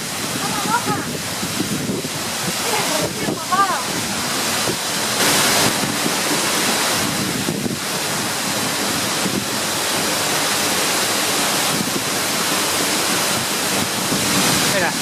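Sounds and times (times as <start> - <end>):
waterfall rushing: 0.0 - 15.0
wind rumbling on microphone: 0.0 - 15.0.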